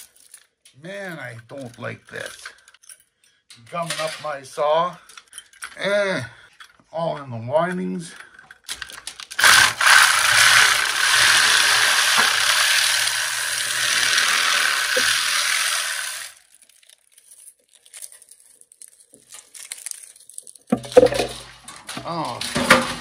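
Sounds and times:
wire handling clicks and rustles: 0.0s - 5.8s, 7.6s - 9.5s, 16.5s - 23.0s
reciprocating saw cutting metal: 9.4s - 16.4s.

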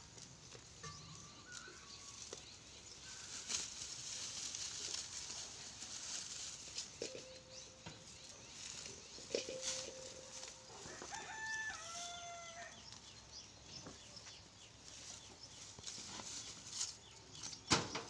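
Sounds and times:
goats chewing dry fodder: 0.0s - 13.8s.

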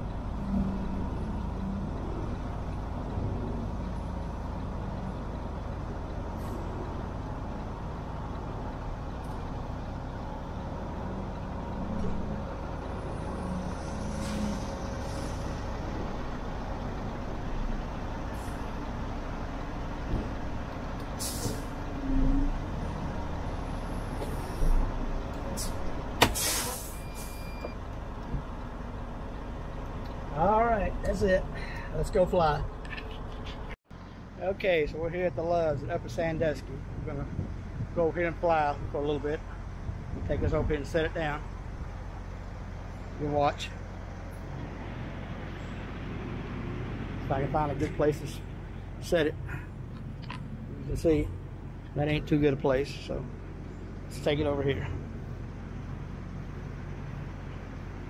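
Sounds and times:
diesel truck engine rumbling: 0.0s - 58.0s
air brake hisses: 21.2s - 21.7s, 25.6s - 27.4s.

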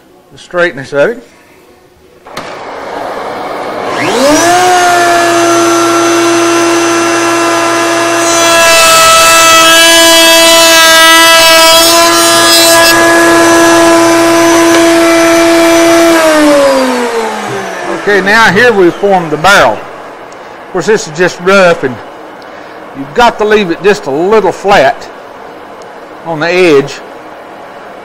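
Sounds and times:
wood router motor whine: 2.3s - 19.7s
router cutting wood: 2.3s - 19.8s.

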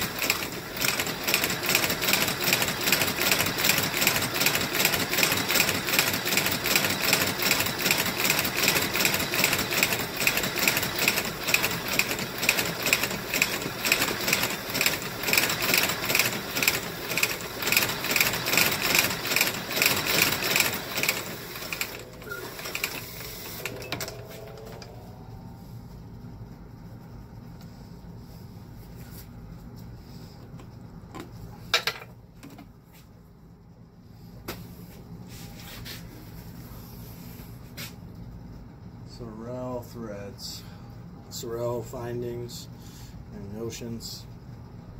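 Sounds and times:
stitching machine clatter: 0.0s - 24.9s.

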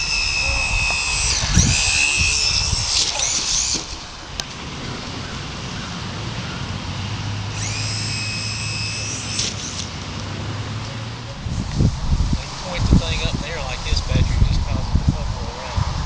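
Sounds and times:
model airplane motor whine: 0.0s - 5.5s, 7.4s - 10.5s
low rumbling: 0.0s - 9.3s, 9.9s - 16.0s.

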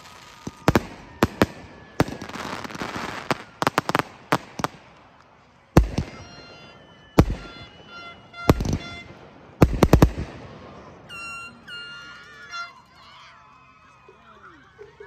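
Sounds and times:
fireworks bangs: 0.0s - 12.0s
fireworks crackling: 0.0s - 12.9s.

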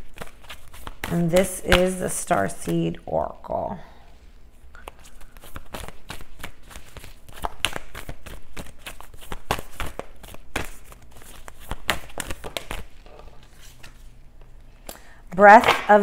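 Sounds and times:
playing cards being shuffled: 0.0s - 2.9s, 4.8s - 14.8s.

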